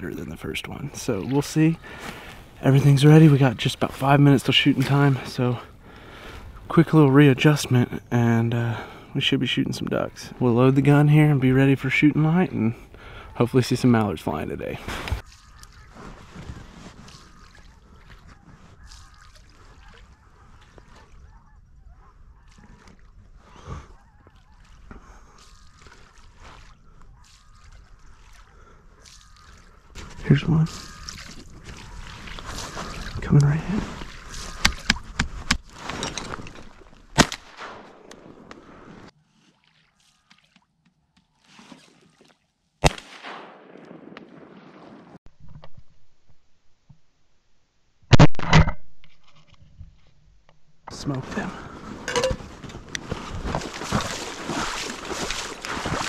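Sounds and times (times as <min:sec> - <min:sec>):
ducks calling faintly: 0:12.7 - 0:37.0
soft rustle: 0:14.9 - 0:21.2
geese honking: 0:15.1 - 0:25.0, 0:25.6 - 0:35.0
shotgun shot: 0:37.2 - 0:38.1, 0:42.8 - 0:45.2.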